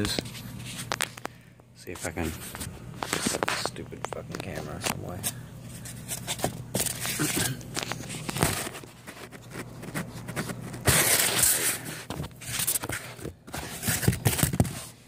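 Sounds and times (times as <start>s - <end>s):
rasping scrape: 4.4s - 15.0s.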